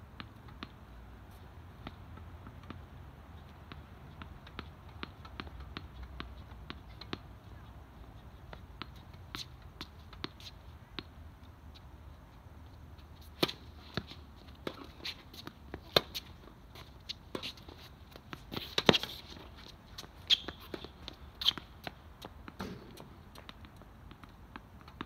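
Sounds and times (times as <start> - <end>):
tennis ball bouncing on court: 0.2 - 1.0, 1.7 - 11.8, 13.0 - 25.0
tennis ball struck by rackets: 13.2 - 16.4, 17.1 - 25.0
shoe squeak: 14.8 - 22.0.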